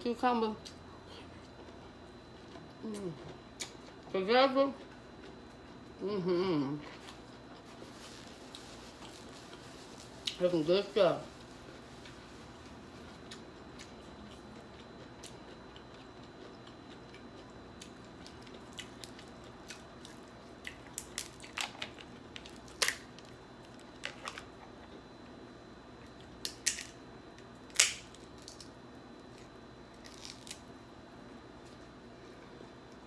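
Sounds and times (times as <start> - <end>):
crab shells cracking: 20.7 - 24.5, 26.4 - 27.0, 27.7 - 30.7.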